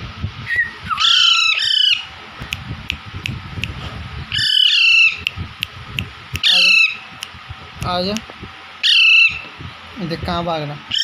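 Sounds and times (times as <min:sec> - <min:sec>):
parakeets squawking: 0:00.6 - 0:02.1, 0:04.3 - 0:05.3, 0:06.4 - 0:07.2, 0:08.8 - 0:09.5.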